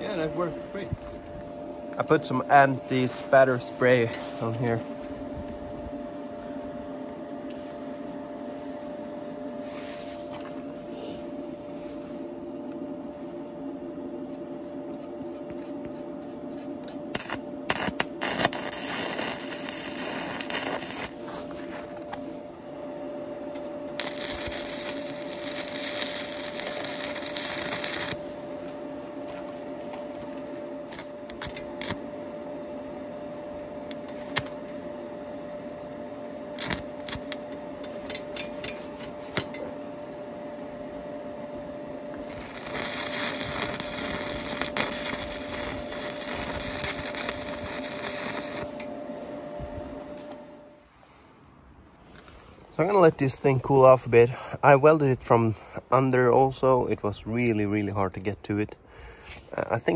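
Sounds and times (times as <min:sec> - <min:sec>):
steady hum: 0:00.0 - 0:59.9
welding arc crackle: 0:15.6 - 0:22.2, 0:23.5 - 0:32.1, 0:33.9 - 0:34.6, 0:36.6 - 0:39.6, 0:42.1 - 0:49.0
sharp clicks of arc striking: 0:16.8 - 0:21.2, 0:30.9 - 0:32.0, 0:33.9 - 0:34.7, 0:36.6 - 0:39.6.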